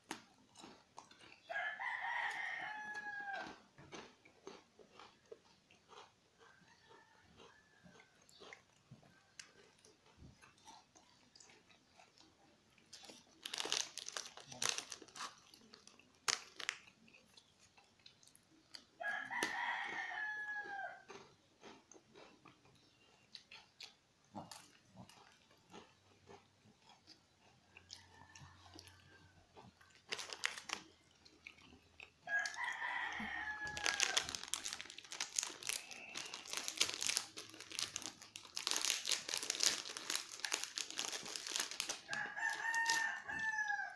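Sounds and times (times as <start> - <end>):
dog crunching crackers: 0.0 - 43.9
rooster crowing: 1.5 - 3.6, 6.5 - 8.2, 19.0 - 21.1, 27.9 - 29.5, 32.2 - 36.3, 42.0 - 43.9.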